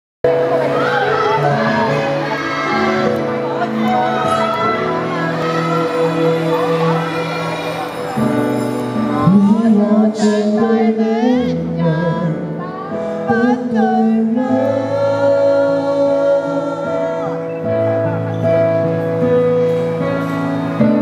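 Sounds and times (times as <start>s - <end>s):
man singing into microphone: 9.0s - 17.8s.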